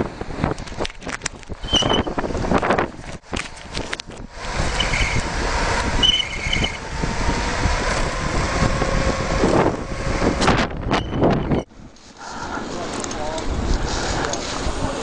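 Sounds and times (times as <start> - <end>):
bike rattling and knocking: 0.0 - 11.6
wind rushing over microphone: 0.0 - 15.0
short high squeals: 1.6 - 2.1, 4.7 - 5.3, 6.0 - 6.8.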